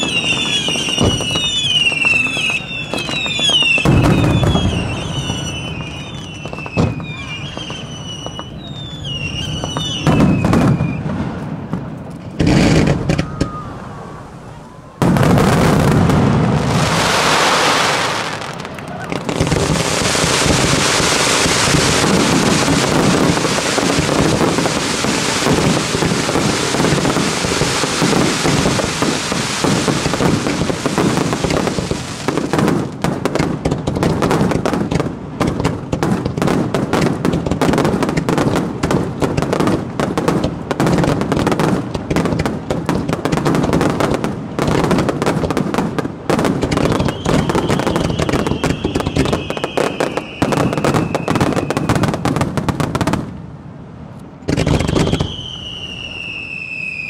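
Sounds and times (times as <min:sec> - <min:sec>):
high falling whistle: 0:00.0 - 0:11.1, 0:13.0 - 0:15.0, 0:46.9 - 0:51.9, 0:54.8 - 0:57.0
fireworks bursts and bangs: 0:00.0 - 0:53.4, 0:54.3 - 0:57.0.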